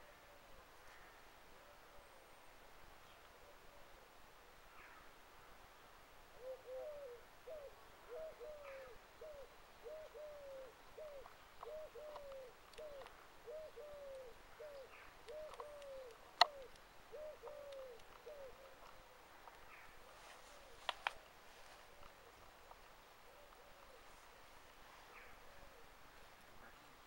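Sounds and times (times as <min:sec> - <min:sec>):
pigeon cooing: 0:06.4 - 0:19.1, 0:23.2 - 0:24.5, 0:25.1 - 0:26.8.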